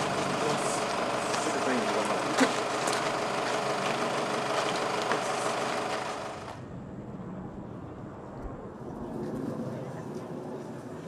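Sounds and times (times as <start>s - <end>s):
van engine idling: 0.0s - 6.6s
open-air ambience: 0.0s - 11.0s.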